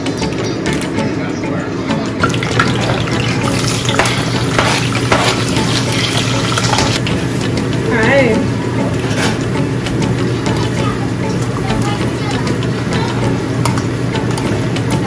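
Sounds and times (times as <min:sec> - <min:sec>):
spatula stirring: 0:02.4 - 0:07.4
onions sizzling in oil: 0:02.6 - 0:07.4.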